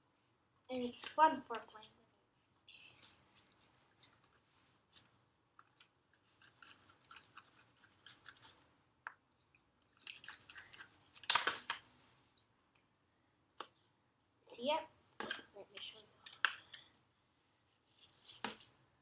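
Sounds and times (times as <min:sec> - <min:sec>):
stick scraping slime on a plate: 0:05.6 - 0:08.6.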